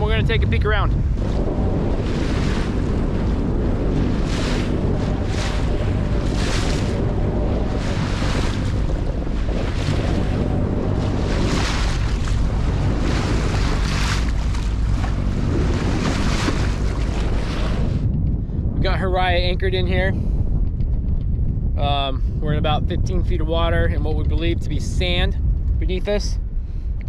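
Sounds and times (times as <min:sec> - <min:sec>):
water rushing along hull: 0:00.0 - 0:19.9
low steady hum: 0:00.0 - 0:27.0
wind buffeting microphone: 0:00.0 - 0:27.0.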